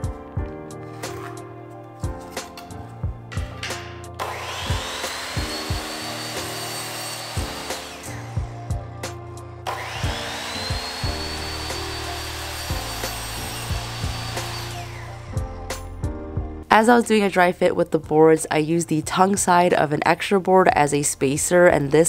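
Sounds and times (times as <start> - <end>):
music with steady beat: 0.0 - 16.7
miter saw cutting wood: 4.2 - 8.6, 9.6 - 15.4.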